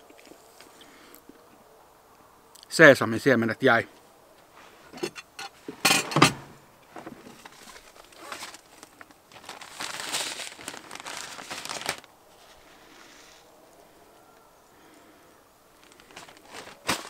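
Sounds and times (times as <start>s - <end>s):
plastic bag crinkling: 7.4s - 12.6s, 15.7s - 17.0s.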